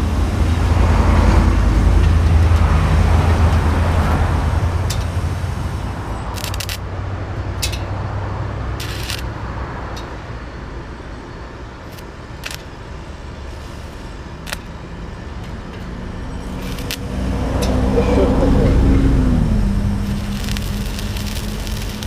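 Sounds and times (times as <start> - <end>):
road traffic rumble: 0.0 - 22.0
welding arc hissing and crackling: 1.8 - 6.9, 8.7 - 9.4, 11.8 - 14.8, 16.4 - 18.6, 19.4 - 22.0.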